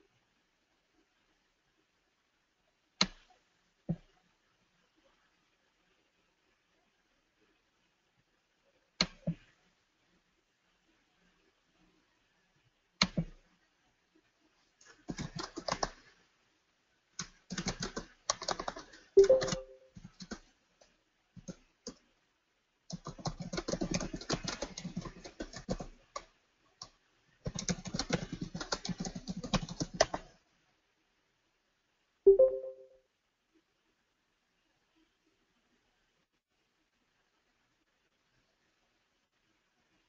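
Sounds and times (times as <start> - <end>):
typing on keyboard: 14.8 - 16.2, 17.2 - 22.0, 22.9 - 30.4
two-note chime: 19.2 - 19.8, 32.3 - 33.0.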